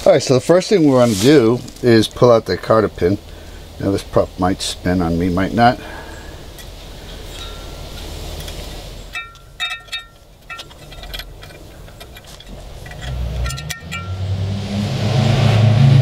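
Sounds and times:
pliers clicking on metal pin: 0:08.4 - 0:14.2
low engine hum: 0:10.7 - 0:16.0.

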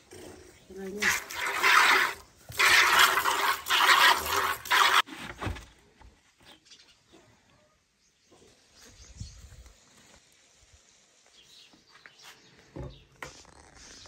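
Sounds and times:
milk squirting into a bucket: 0:01.0 - 0:05.1.

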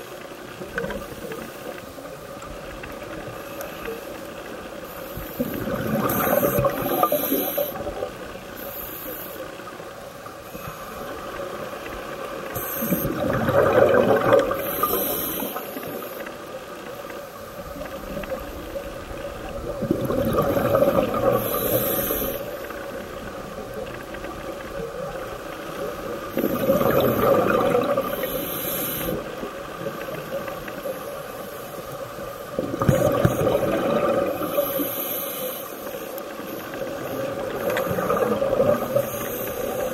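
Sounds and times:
exhaled bubbles gurgling: 0:00.0 - 0:08.6, 0:10.9 - 0:39.9
regulator inhale hiss: 0:03.2 - 0:11.5, 0:12.4 - 0:13.2, 0:14.5 - 0:17.4, 0:21.2 - 0:22.8, 0:28.0 - 0:33.5, 0:34.4 - 0:38.1, 0:38.8 - 0:39.9.

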